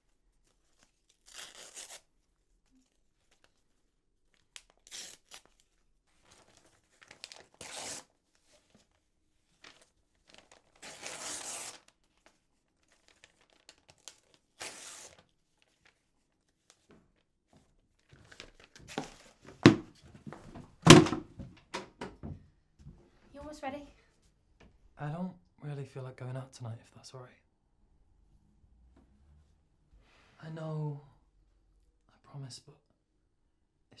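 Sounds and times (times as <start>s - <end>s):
paper rustling and tearing: 0.5s - 2.1s, 4.6s - 16.9s.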